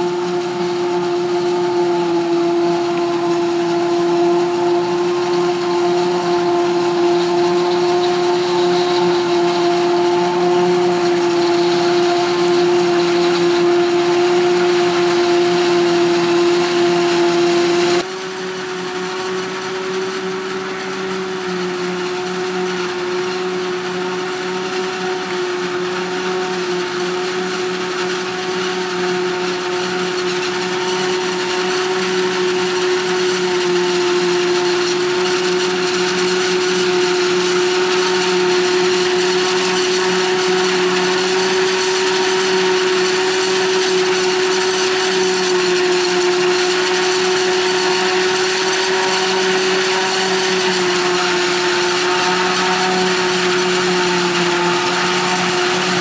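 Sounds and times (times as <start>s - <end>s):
engines humming: 0.0s - 23.7s
harvester high whine: 0.0s - 56.0s.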